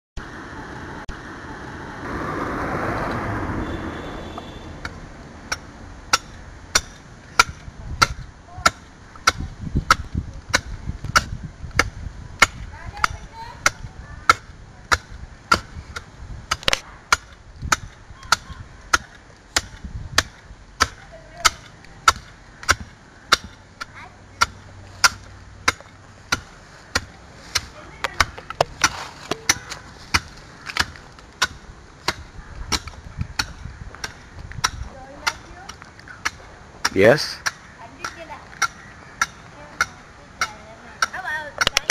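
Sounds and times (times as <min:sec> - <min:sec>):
axe chopping stone block: 0:16.5 - 0:23.6.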